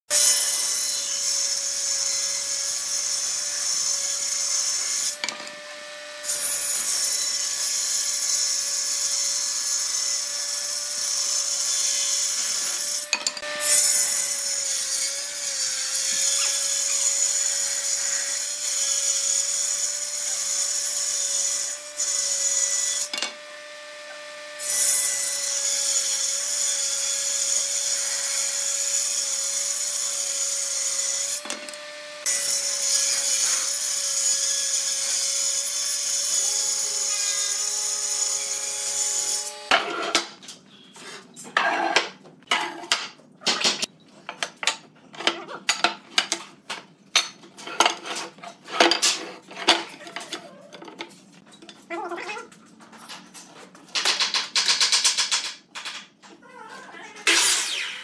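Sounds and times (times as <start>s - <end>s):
woodworking power tool running: 2.2s - 6.6s, 21.0s - 24.9s, 31.3s - 33.2s.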